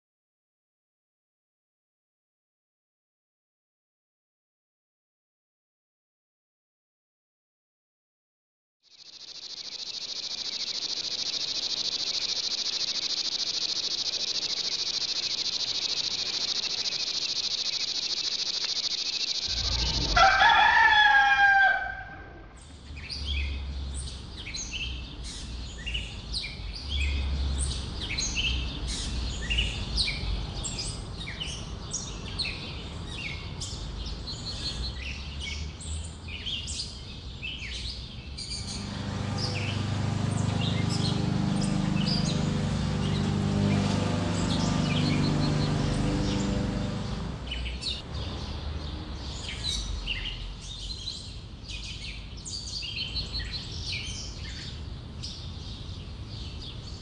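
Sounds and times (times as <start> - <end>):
small birds chirping: 8.9 - 20.2
high-pitched hiss: 9.0 - 20.2
rooster crowing: 19.4 - 22.6.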